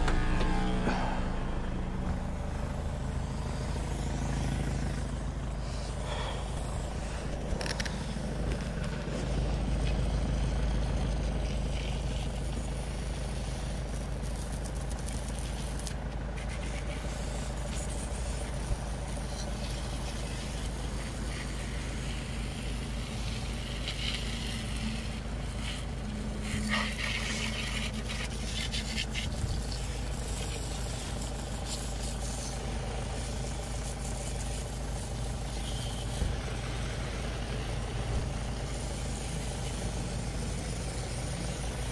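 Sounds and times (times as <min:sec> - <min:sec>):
steady low rumble: 0:00.0 - 0:26.6, 0:29.2 - 0:41.9
hose spray hissing on bike: 0:05.6 - 0:41.9.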